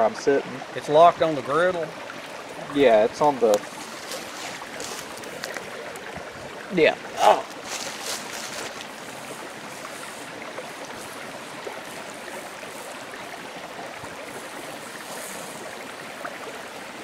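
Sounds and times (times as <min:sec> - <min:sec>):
faint crackles: 0:03.1 - 0:06.6, 0:07.2 - 0:16.5.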